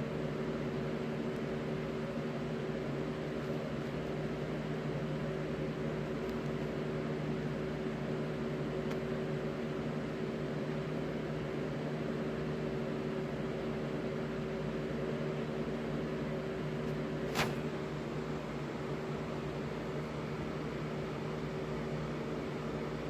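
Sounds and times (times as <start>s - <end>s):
steady mechanical hum: 0.0s - 23.0s.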